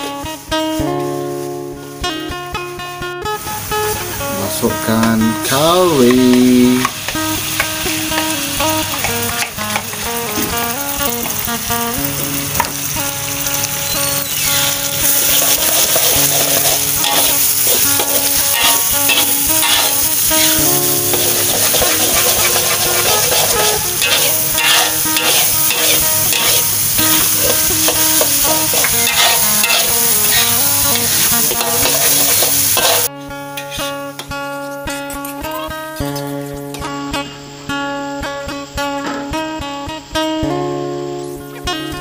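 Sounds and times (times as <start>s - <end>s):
food sizzling in a wok: 0.0s - 42.0s
guitar music: 0.0s - 42.0s
metal spatula scraping wok: 13.4s - 34.3s.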